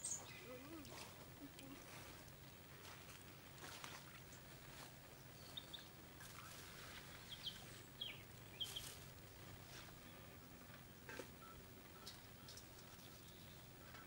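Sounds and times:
bird chirping: 0.0s - 0.7s, 5.1s - 10.2s
leaves rustling: 6.1s - 10.1s.

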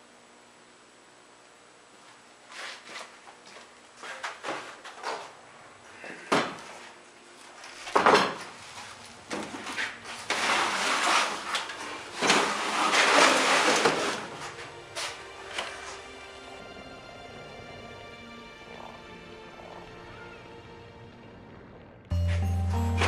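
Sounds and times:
pallet scraping and clattering: 7.6s - 16.0s.

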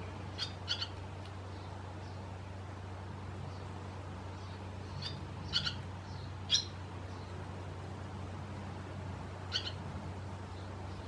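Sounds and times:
swallows chirping: 0.0s - 2.3s, 4.3s - 7.4s, 9.5s - 9.8s.

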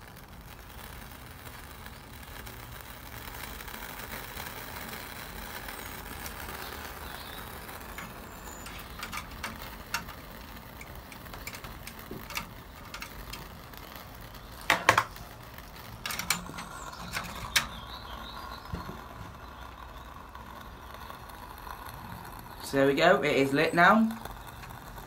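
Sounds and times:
faint steady hiss: 0.0s - 25.0s
metal clicks and taps: 8.0s - 10.2s
metal clatter: 16.0s - 17.8s.

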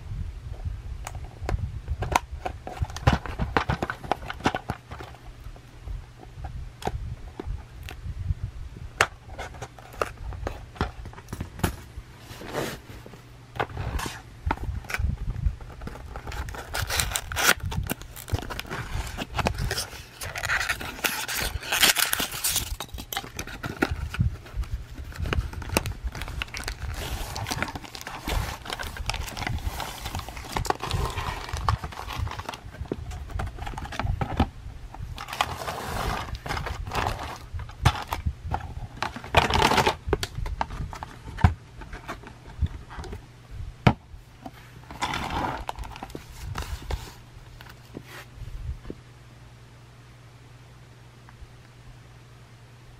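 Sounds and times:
cardboard scraping and rustling: 2.0s - 5.2s, 9.2s - 43.2s, 44.4s - 48.3s
plastic wrapping crinkling: 15.7s - 34.3s.

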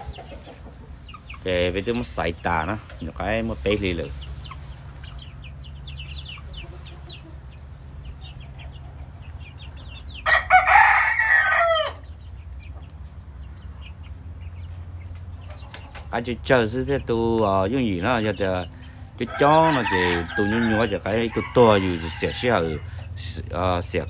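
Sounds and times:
rooster crowing: 10.2s - 12.1s, 19.2s - 23.0s.

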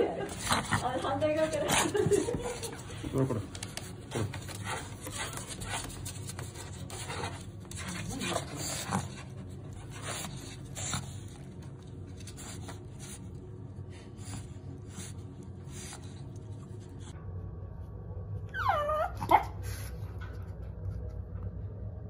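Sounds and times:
dog whining: 18.5s - 19.9s.

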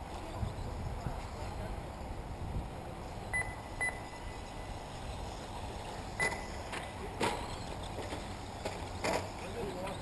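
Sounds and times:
rc race trucks running: 4.3s - 10.0s.

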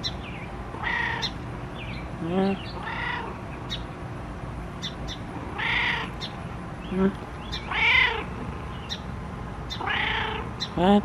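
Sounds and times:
cat meowing: 0.8s - 1.3s, 2.8s - 3.4s, 5.6s - 6.1s, 7.7s - 8.3s, 9.8s - 10.5s.

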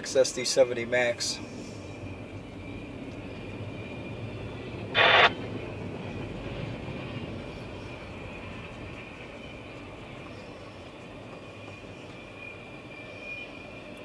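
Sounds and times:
freight train rolling past: 0.4s - 14.0s
short loud burst of noise: 5.0s - 5.3s.

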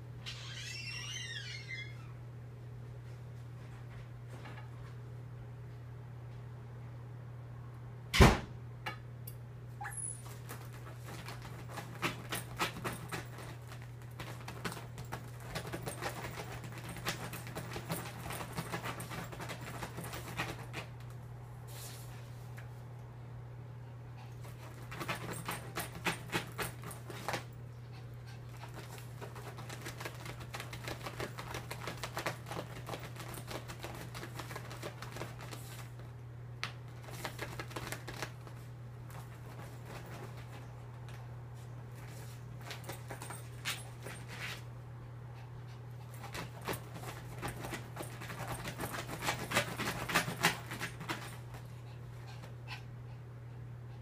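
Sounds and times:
dog scratching at fabric: 10.2s - 20.9s, 24.4s - 27.5s, 28.4s - 36.1s, 37.0s - 40.7s, 46.0s - 52.5s.

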